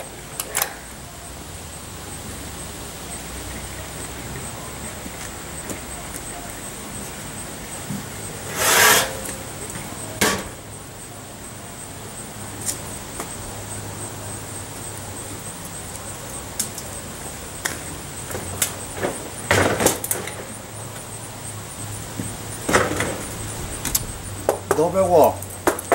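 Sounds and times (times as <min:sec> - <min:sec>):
metal pots scraping clatter: 0:08.0 - 0:10.7
sharp metal clank: 0:08.4 - 0:09.4, 0:10.2 - 0:10.6.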